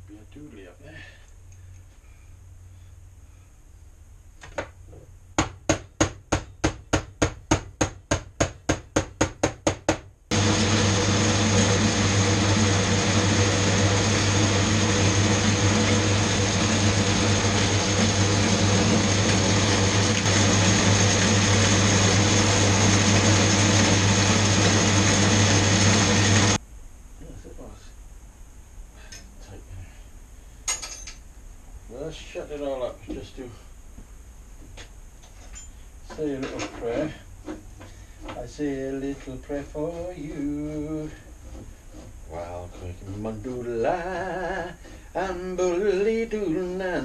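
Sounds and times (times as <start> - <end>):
low mains hum: 0.0 - 8.8, 26.6 - 47.0
loud steady machine noise: 10.3 - 26.6.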